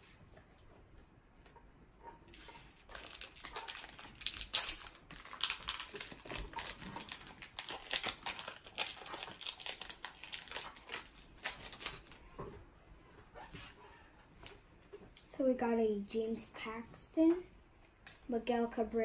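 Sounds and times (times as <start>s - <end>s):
foil wrapper crinkling and tearing: 2.3s - 12.2s.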